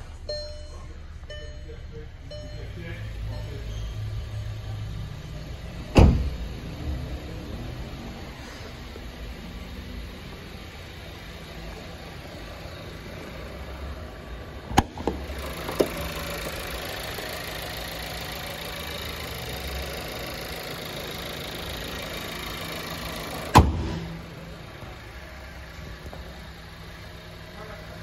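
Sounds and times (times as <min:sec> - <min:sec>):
car engine idling: 0:00.0 - 0:28.0
car hood slamming shut: 0:05.9 - 0:06.4, 0:23.5 - 0:24.2.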